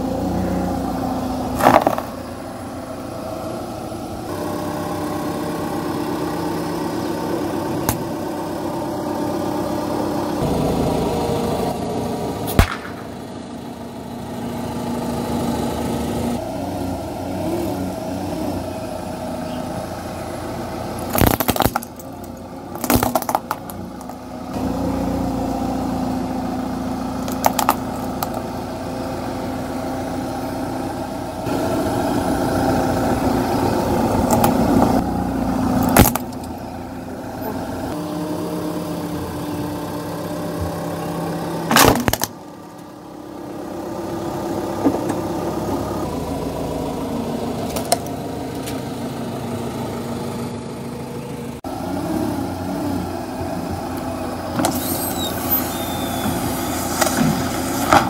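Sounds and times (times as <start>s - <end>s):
car engine running slowly: 0.0s - 58.0s
plastic cracking under tyre: 21.1s - 22.1s, 22.7s - 24.2s, 41.7s - 42.4s.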